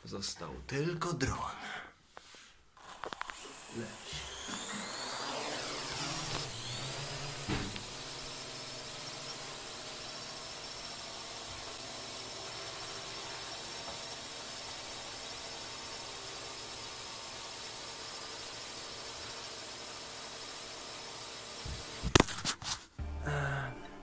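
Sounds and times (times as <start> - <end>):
drone propellers whining: 2.8 - 19.0
thump: 7.4 - 7.8.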